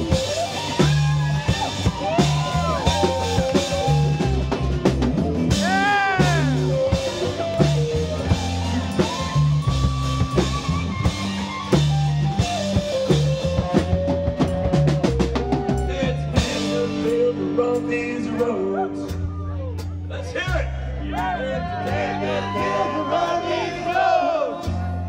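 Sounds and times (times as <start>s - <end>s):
electric guitar bending notes: 0.0s - 19.6s
drum kit: 0.0s - 25.0s
upright bass: 0.0s - 25.0s.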